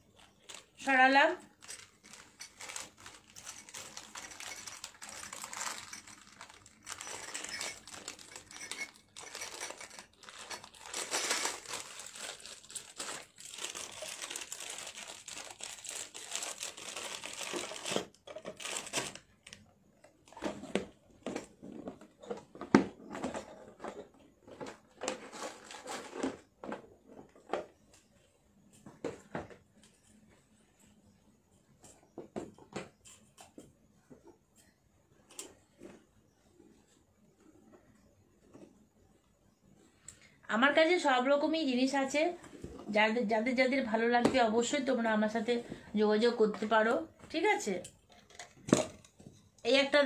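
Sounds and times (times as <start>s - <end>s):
packaging crinkling: 0.0s - 0.8s, 1.5s - 19.6s.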